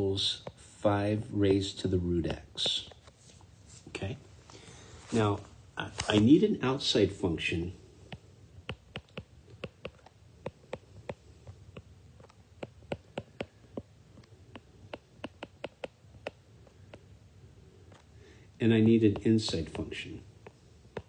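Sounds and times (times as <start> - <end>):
stylus tapping on screen: 1.2 - 3.1, 8.1 - 17.2, 18.8 - 21.0.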